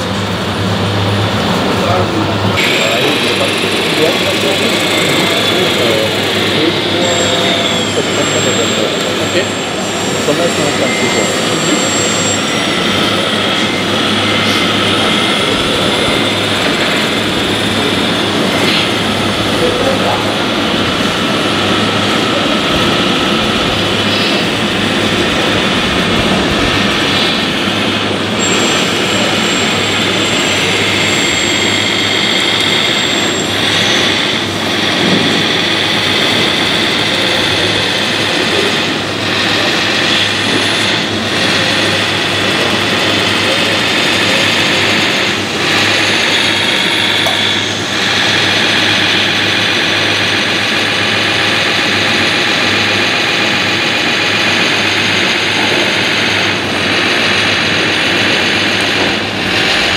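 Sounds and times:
electric hydraulic whine: 0.0s - 59.9s
hum of model machinery: 0.0s - 59.9s.

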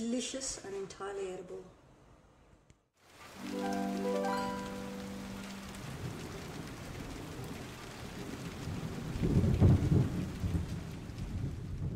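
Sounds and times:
steady rain: 3.0s - 11.9s
low rumble of thunder: 5.4s - 11.9s.

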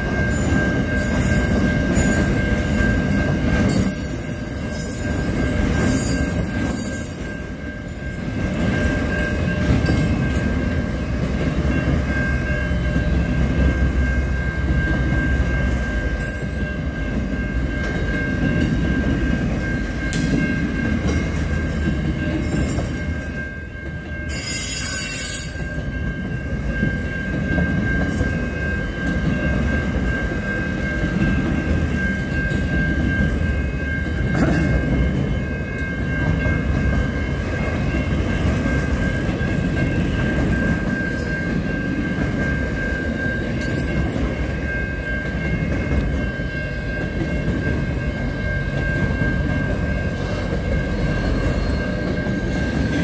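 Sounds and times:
train wheels rumbling on rail: 0.0s - 53.0s
high wheel squeal: 5.8s - 7.5s, 24.3s - 25.8s.

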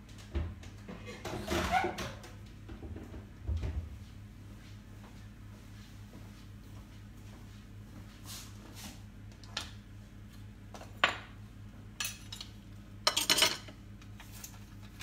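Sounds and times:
dishes and cutlery clattering: 12.0s - 13.8s.

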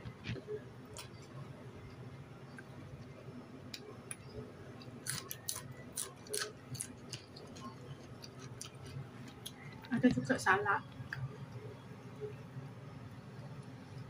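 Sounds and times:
faint low hum: 0.0s - 14.0s
crunchy chewing: 4.8s - 9.9s.

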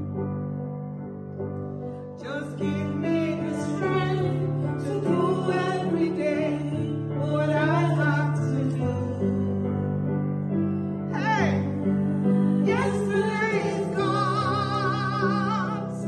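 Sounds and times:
woman singing: 2.2s - 9.6s, 11.2s - 16.0s.

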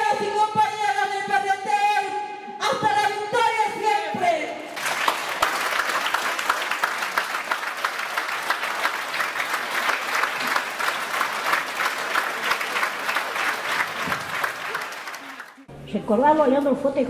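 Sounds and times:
audience applauding: 4.8s - 15.7s.

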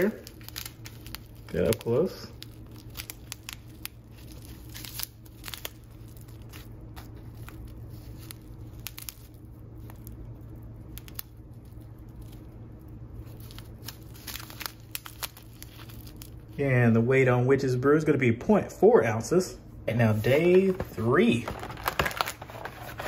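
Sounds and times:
plastic pouch crinkling: 0.0s - 16.6s, 20.5s - 23.0s
steady low hum: 0.0s - 23.0s.

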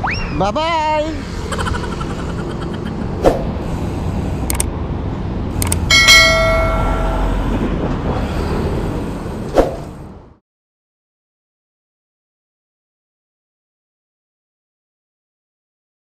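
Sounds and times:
wind and road rumble: 0.0s - 10.4s
bell ding: 5.9s - 7.5s.

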